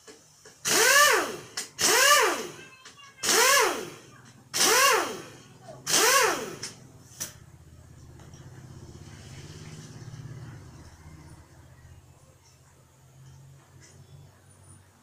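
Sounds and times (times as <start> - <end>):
power drill whining: 0.6 - 2.6, 4.6 - 6.8.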